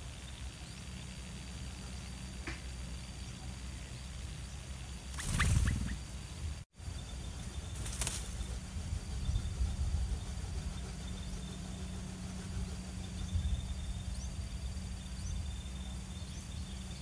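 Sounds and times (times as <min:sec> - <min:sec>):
steady low hum: 0:00.0 - 0:17.0
short high bird chirps: 0:05.1 - 0:06.1
bird wings fluttering: 0:05.1 - 0:06.2, 0:07.6 - 0:08.6.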